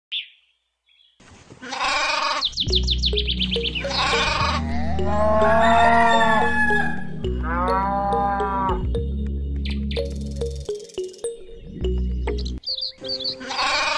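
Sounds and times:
goat bleating: 1.6s - 2.4s, 3.8s - 8.8s, 13.4s - 13.9s
background music with drone: 2.7s - 13.6s
long animal call: 3.9s - 8.8s, 13.4s - 13.9s.

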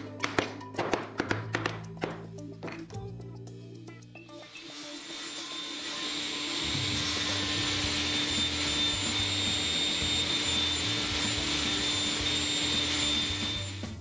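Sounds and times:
table saw running: 4.5s - 14.0s.

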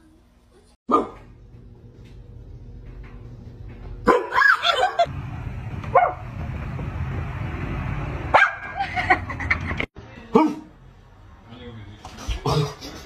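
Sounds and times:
dog barking: 0.9s - 1.2s, 4.1s - 4.6s, 8.3s - 8.7s, 10.3s - 10.7s.

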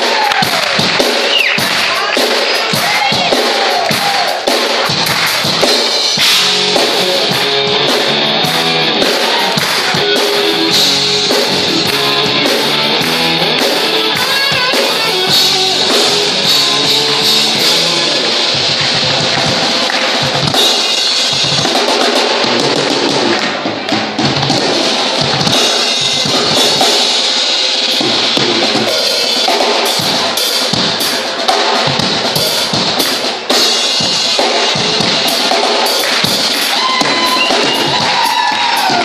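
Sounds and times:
drum kit rock rhythm: 0.0s - 39.0s
electric guitar: 0.0s - 39.0s.

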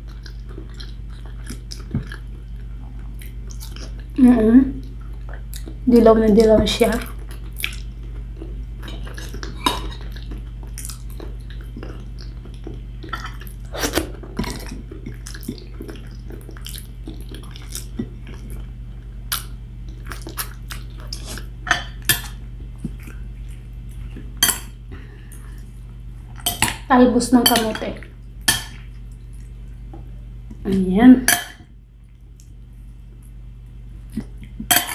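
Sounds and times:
chewing and lip smacks: 0.0s - 4.2s, 4.8s - 5.8s, 7.0s - 21.5s, 28.2s - 29.9s
steady low hum: 0.0s - 34.9s.

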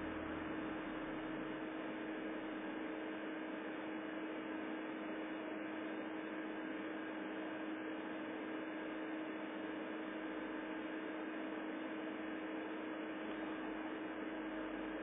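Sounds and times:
constant low hum: 0.0s - 2.6s.

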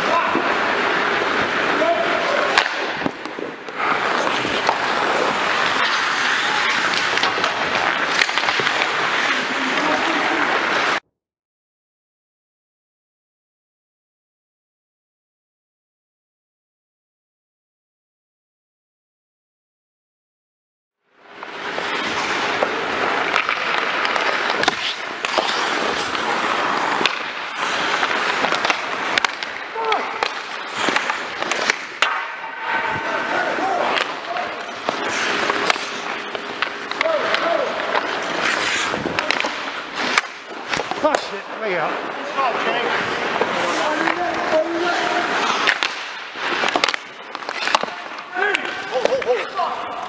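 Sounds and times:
hockey sticks and puck clacking: 0.0s - 11.0s, 21.2s - 50.0s
skate blades scraping ice: 0.0s - 11.0s, 21.1s - 50.0s.

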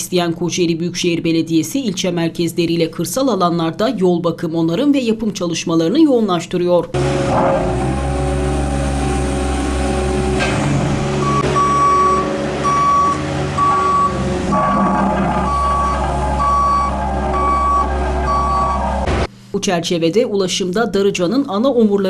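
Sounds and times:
roller diesel engine running: 7.0s - 19.3s
reversing alarm beeping: 11.1s - 19.3s.

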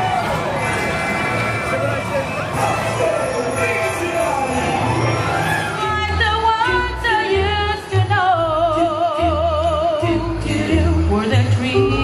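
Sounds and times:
mariachi band playing: 0.0s - 12.0s
person singing with vibrato: 5.6s - 12.0s.

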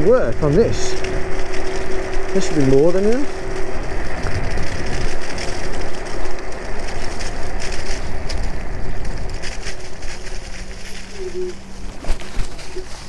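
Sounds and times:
electric motor whine: 0.0s - 13.0s
small clicks and crackles: 0.0s - 13.0s
tyre rumble: 0.0s - 13.0s
wind on microphone: 0.0s - 13.0s.

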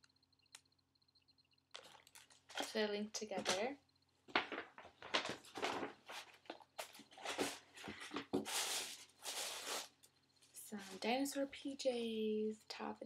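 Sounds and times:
gift wrapping rustling: 4.3s - 11.2s.

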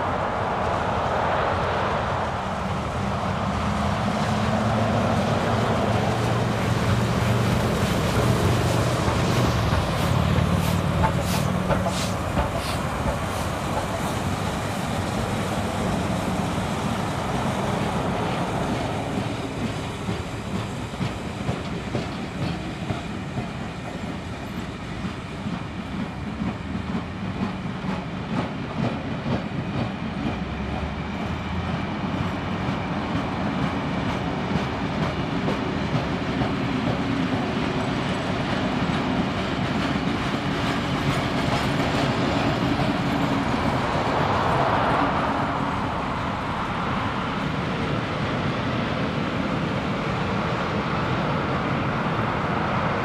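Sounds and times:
steam locomotive rumbling past: 0.0s - 53.0s
train wheels clicking over rail joints: 6.4s - 16.4s, 18.2s - 44.0s.

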